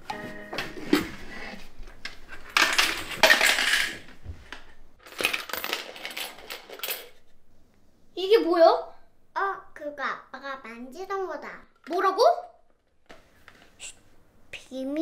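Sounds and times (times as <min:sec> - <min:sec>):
coins rattling in piggy bank: 0:02.6 - 0:04.0, 0:05.0 - 0:07.2.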